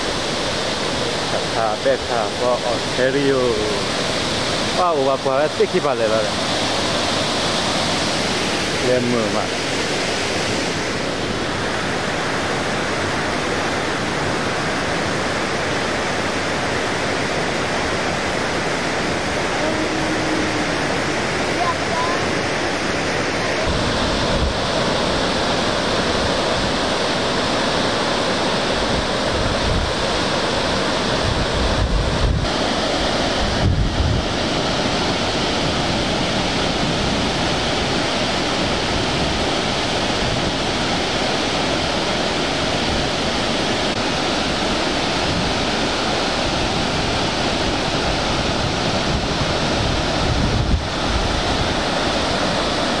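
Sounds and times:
waterfall rushing: 0.0 - 53.0
wind buffeting microphone: 16.6 - 53.0.

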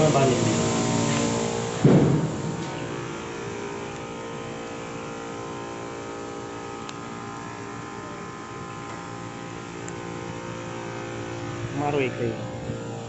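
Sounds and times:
spray hissing: 0.0 - 3.2
pump motor hum: 0.0 - 13.0.

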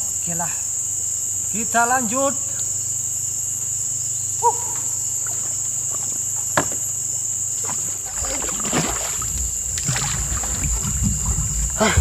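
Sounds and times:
insects droning: 0.0 - 12.0
paddle knocks and splashes: 7.6 - 12.0
low rumble: 9.0 - 12.0.

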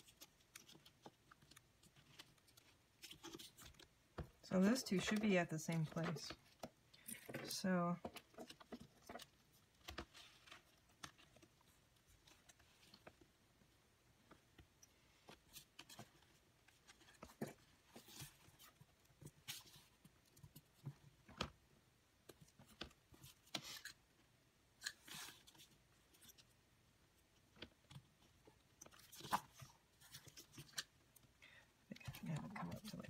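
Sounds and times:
paper and card rustling: 0.0 - 13.4, 27.4 - 31.1.

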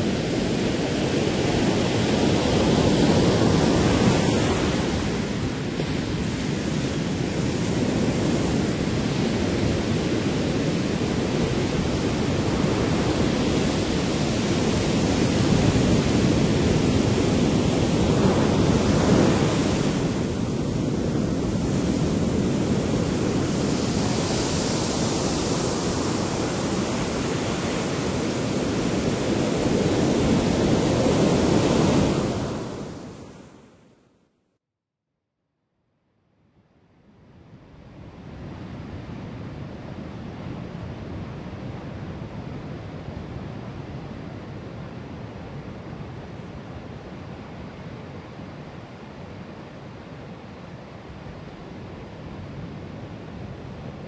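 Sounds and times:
wind buffeting microphone: 0.0 - 33.2
ocean surf: 0.0 - 33.8, 37.7 - 54.0.

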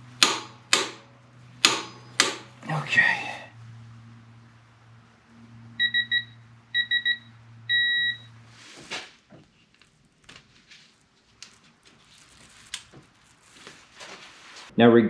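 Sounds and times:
low steady hum: 0.0 - 15.0
torque wrench beeping: 5.8 - 8.3.

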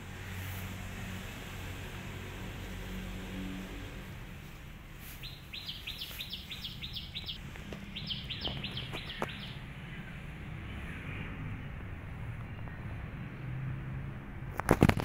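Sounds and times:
low outdoor background: 0.0 - 15.0
bird chirping: 5.0 - 11.8.

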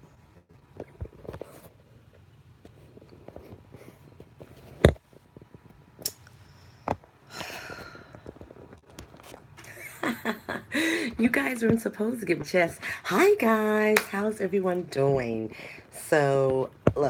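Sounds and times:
woman's voice: 10.8 - 17.0.

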